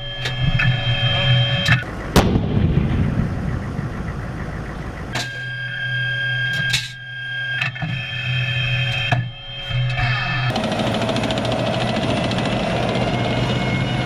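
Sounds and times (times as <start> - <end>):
tank engine whining hum: 0.0 - 14.0
tank gun blast: 1.9 - 5.1.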